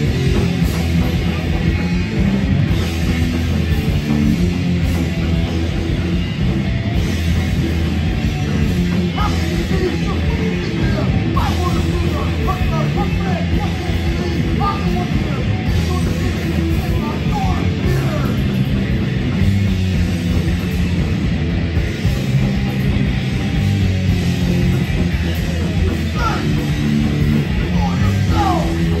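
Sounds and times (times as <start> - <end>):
bass guitar: 0.0 - 29.0
distorted electric guitar: 0.0 - 29.0
fast drums: 0.0 - 29.0
shouted vocals: 9.1 - 18.6, 26.0 - 29.0.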